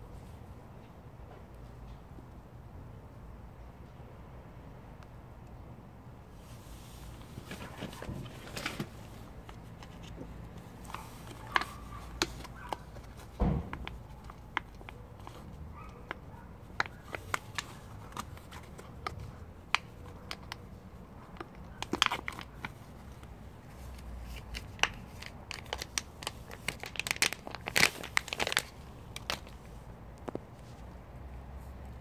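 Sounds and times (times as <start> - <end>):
close crinkling and rustling: 6.4 - 31.0.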